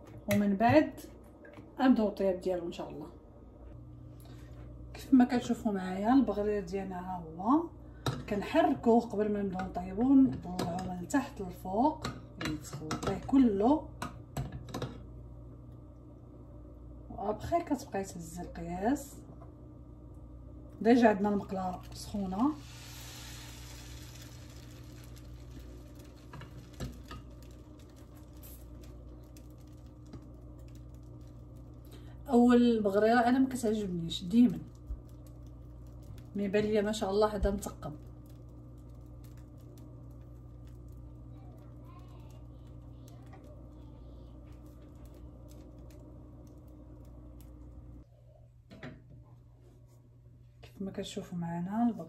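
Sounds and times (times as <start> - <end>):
steady low hum: 0.0 - 52.0
batter sizzling in a frying pan: 20.9 - 48.0.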